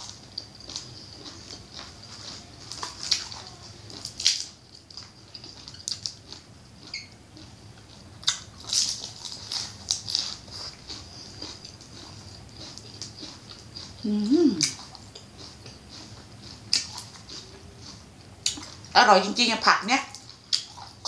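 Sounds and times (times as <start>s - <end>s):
chewing and crunching: 0.0s - 21.0s
wet mouth clicks and smacks: 14.6s - 14.8s.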